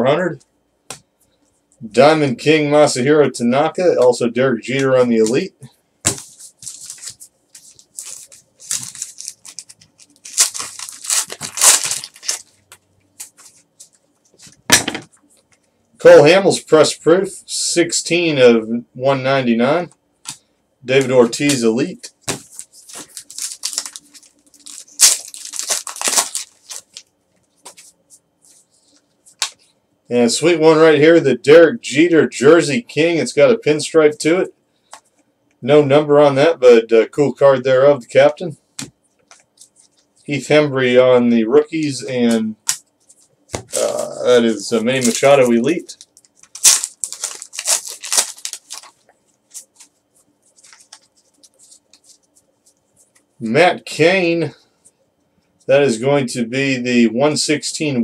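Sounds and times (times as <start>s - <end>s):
cards rustling and ticking: 6.0s - 14.6s, 22.3s - 29.7s, 42.6s - 53.3s
foil wrapper tearing and crinkling: 6.2s - 12.6s, 22.3s - 27.1s, 43.7s - 49.9s.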